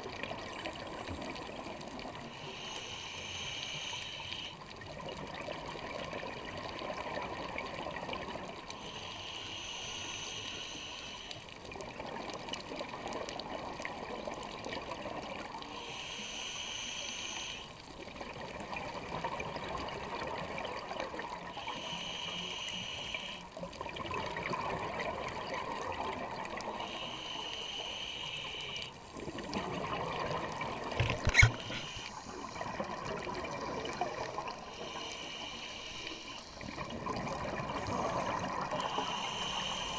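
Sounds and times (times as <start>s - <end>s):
regulator hissing inhale: 2.1s - 4.7s, 8.7s - 11.6s, 15.6s - 17.9s, 21.4s - 23.7s, 26.6s - 29.1s, 31.2s - 39.9s
exhaled bubbles underwater: 23.8s - 27.0s, 28.6s - 35.1s, 36.6s - 39.6s.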